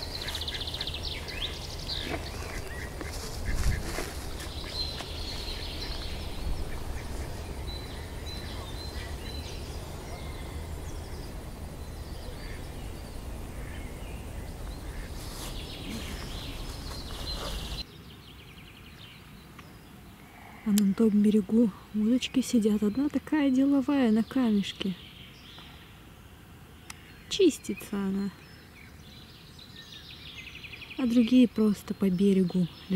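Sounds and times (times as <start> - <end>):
ducks quacking: 0.0 - 4.0, 4.6 - 9.2, 14.8 - 15.2
low wind rumble: 0.0 - 17.9
small birds chirping: 0.0 - 32.9.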